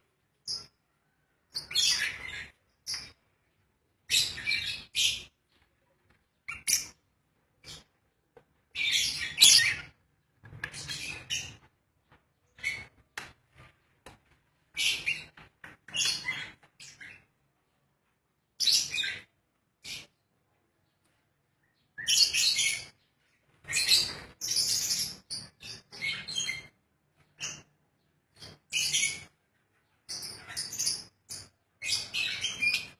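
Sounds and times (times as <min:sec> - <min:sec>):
lovebirds chirping and squawking: 0:00.5 - 0:00.8, 0:01.5 - 0:03.3, 0:04.1 - 0:05.7, 0:06.4 - 0:07.0, 0:07.6 - 0:08.0, 0:08.7 - 0:13.8, 0:14.7 - 0:17.4, 0:18.6 - 0:20.2, 0:21.8 - 0:29.4, 0:30.0 - 0:32.9.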